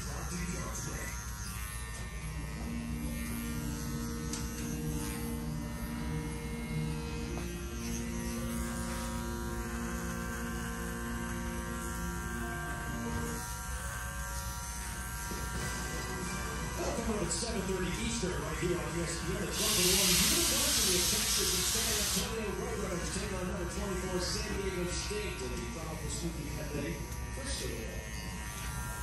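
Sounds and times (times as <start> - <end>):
electric clippers humming: 0.0 - 29.0.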